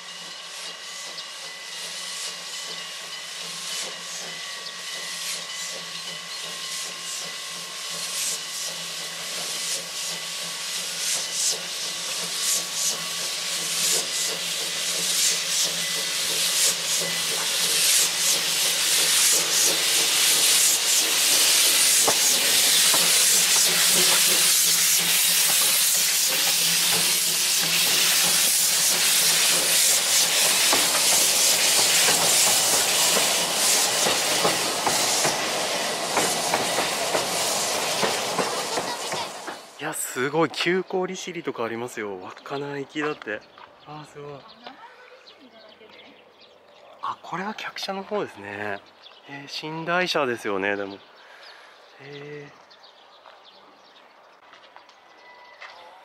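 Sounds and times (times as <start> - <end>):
steam hissing: 0.0 - 40.4
steam locomotive running past: 0.0 - 44.5, 47.3 - 56.0.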